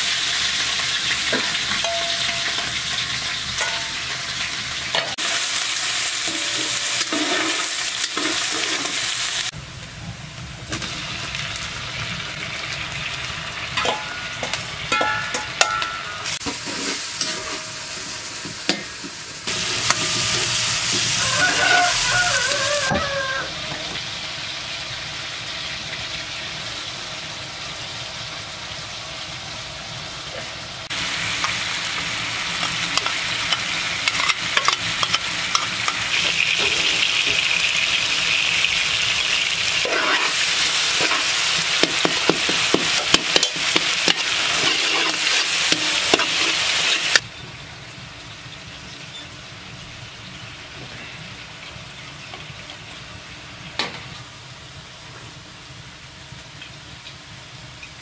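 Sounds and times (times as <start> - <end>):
vegetables sizzling in a pot: 0.0 - 58.0
metal spoon scraping pot: 41.0 - 47.2.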